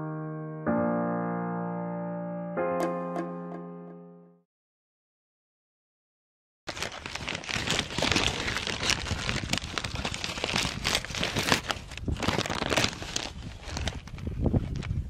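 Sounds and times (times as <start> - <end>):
paper bag crinkling: 6.7 - 14.9.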